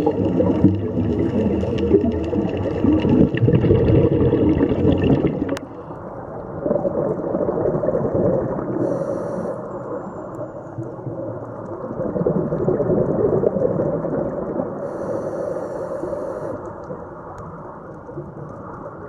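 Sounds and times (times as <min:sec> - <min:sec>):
churning underwater wash: 0:00.0 - 0:19.0
click: 0:16.4 - 0:18.8.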